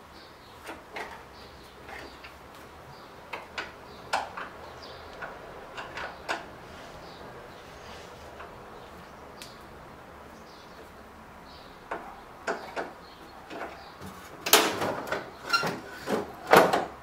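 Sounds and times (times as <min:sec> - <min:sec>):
clattering knocks and scrapes: 0:00.6 - 0:02.4, 0:11.9 - 0:16.9.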